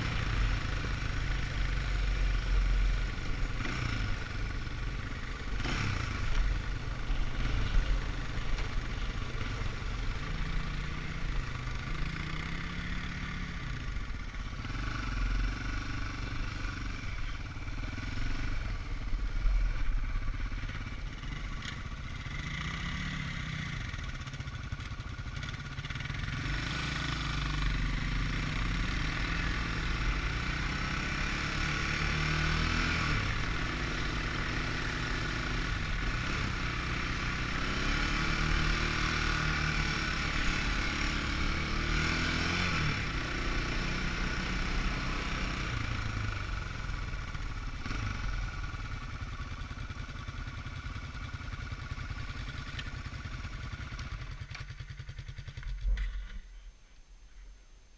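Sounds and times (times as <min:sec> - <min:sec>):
atv engine running: 0:00.0 - 0:56.4.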